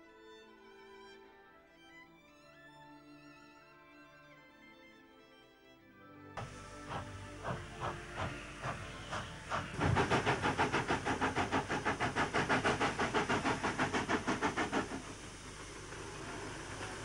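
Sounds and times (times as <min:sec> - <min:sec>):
steam hiss: 0:06.4 - 0:17.0
steam locomotive chuffing: 0:06.4 - 0:17.0.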